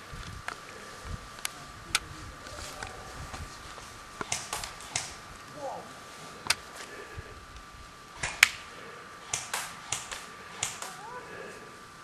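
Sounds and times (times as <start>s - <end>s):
airsoft gunfire cracks: 4.2s - 5.2s, 8.2s - 11.1s.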